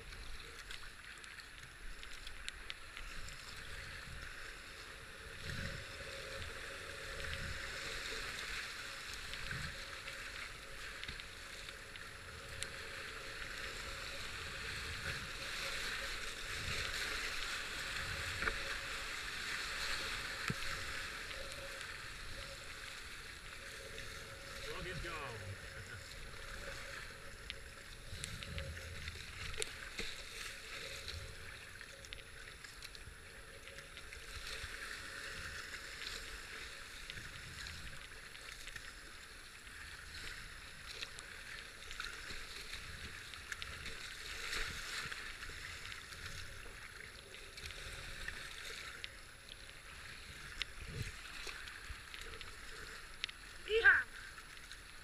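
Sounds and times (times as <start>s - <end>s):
whitewater rushing and splashing: 23.6s - 27.3s.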